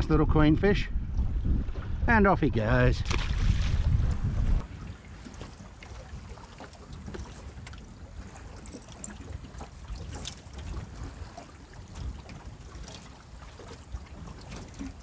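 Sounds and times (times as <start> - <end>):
wind rumble on microphone: 0.0 - 15.0
water lapping against boat hull: 3.0 - 15.0.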